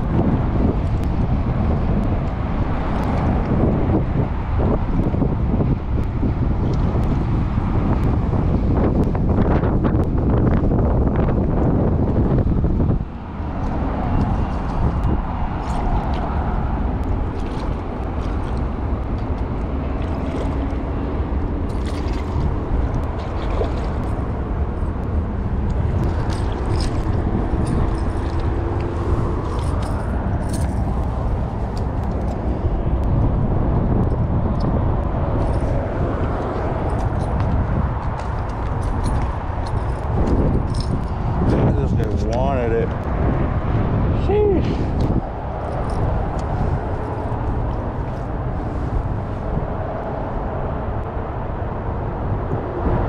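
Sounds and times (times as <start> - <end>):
wind rumbling on microphone: 0.0 - 53.0
handling clicks and rustles: 24.9 - 32.5, 35.4 - 43.1.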